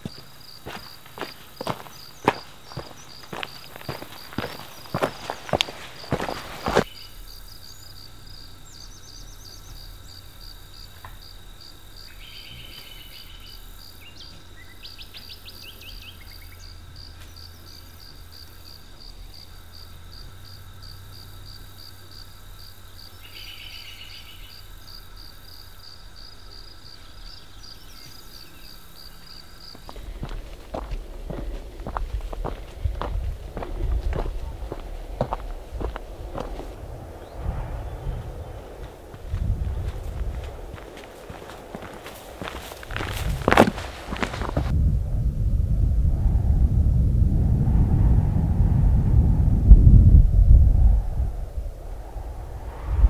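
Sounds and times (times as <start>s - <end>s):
footsteps: 0.0s - 6.9s, 29.6s - 44.8s
insects trilling: 0.0s - 47.2s.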